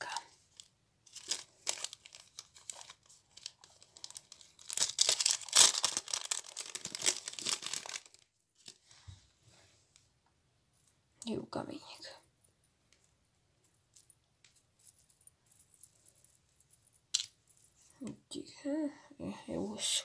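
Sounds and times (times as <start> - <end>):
plastic packet crinkling and tearing: 0.0 - 8.8.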